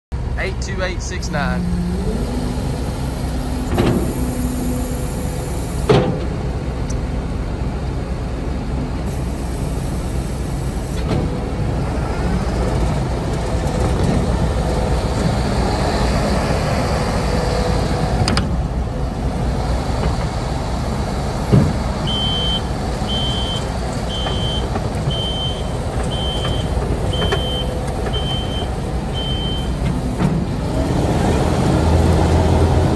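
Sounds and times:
diesel loader engine running: 0.1s - 32.9s
reversing alarm beeping: 22.0s - 29.8s.

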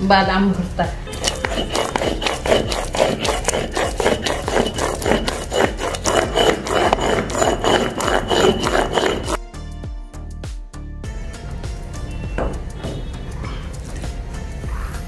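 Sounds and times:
stone roller scraping on stone slab: 1.1s - 9.4s.

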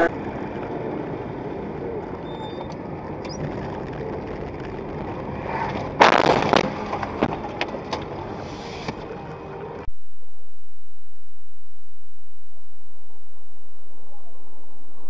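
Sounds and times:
car road and engine noise: 0.0s - 10.0s.

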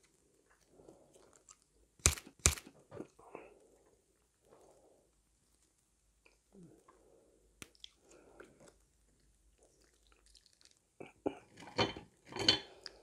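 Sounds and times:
crispy fried food crackling: 7.6s - 11.0s.

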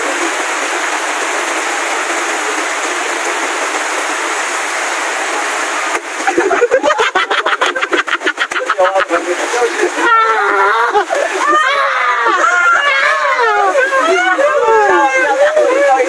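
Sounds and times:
heavy rain hissing: 0.0s - 16.0s
voices: 6.3s - 16.0s.

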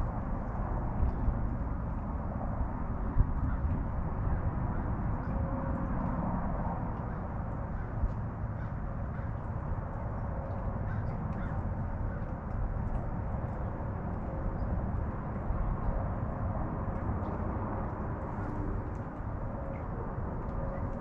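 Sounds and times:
low outdoor rumble: 0.0s - 21.0s
crows cawing faintly: 7.0s - 12.5s.

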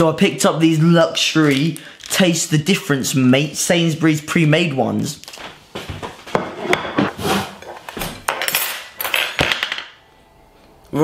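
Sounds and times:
cutlery and dishes clattering: 6.4s - 9.9s.

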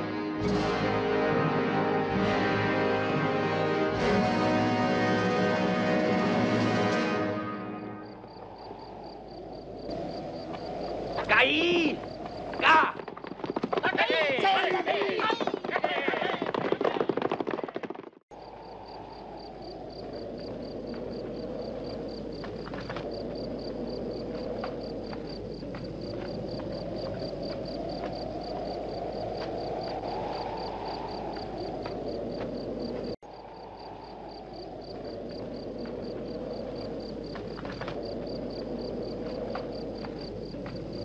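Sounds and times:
high insect chirps: 7.7s - 15.4s, 18.3s - 41.0s
steady rushing noise: 7.9s - 15.7s, 18.3s - 41.0s
galloping horses: 10.9s - 18.2s.

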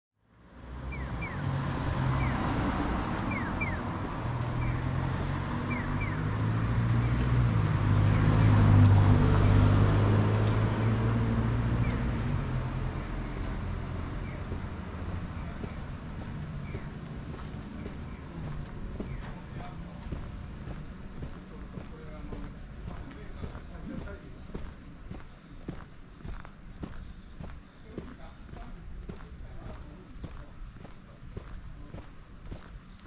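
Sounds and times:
vehicle engine passing: 0.4s - 32.8s.

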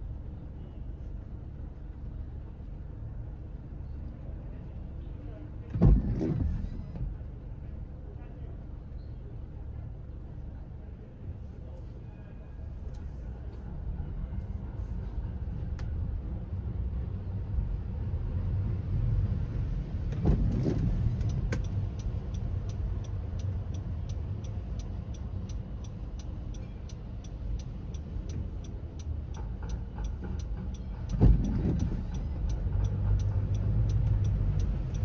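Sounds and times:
car engine and road rumble: 0.0s - 35.0s
turn signal ticking: 20.1s - 35.0s.

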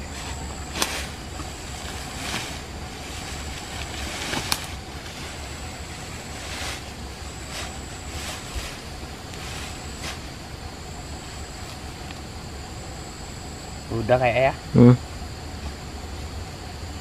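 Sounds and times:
leaves and branches rustling: 0.0s - 14.4s
high insect whine: 0.0s - 17.0s
twigs snapping: 0.2s - 5.3s.

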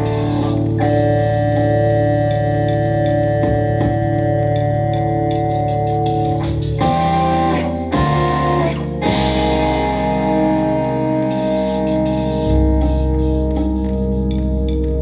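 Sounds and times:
ringing guitar notes: 0.0s - 14.8s
low sustained bass: 6.8s - 15.0s.

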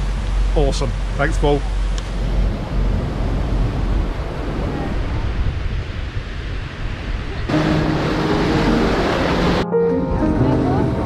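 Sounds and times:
motor yacht cruising: 0.0s - 5.7s, 7.1s - 11.0s
rush of the sea: 0.0s - 9.7s
wind buffeting microphone: 0.0s - 11.0s
music with held notes: 7.5s - 11.0s.

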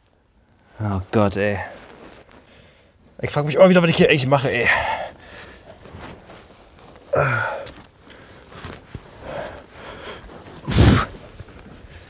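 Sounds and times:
breathing: 2.4s - 3.0s, 4.7s - 5.8s, 7.2s - 8.6s, 9.2s - 10.4s
man grunting: 7.2s - 7.7s.

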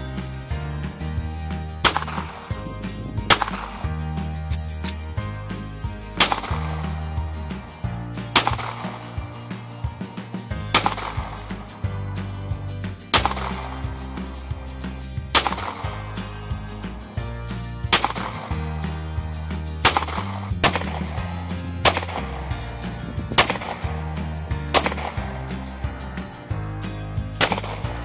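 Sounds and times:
background music: 0.0s - 28.0s
handgun shots: 1.9s - 2.4s, 6.2s - 6.9s, 8.4s - 9.0s, 15.4s - 16.0s, 27.4s - 28.0s.

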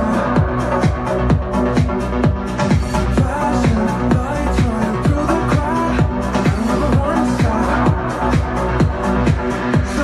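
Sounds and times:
electronic dance music: 0.0s - 10.0s
steady kick drum: 0.0s - 10.0s.

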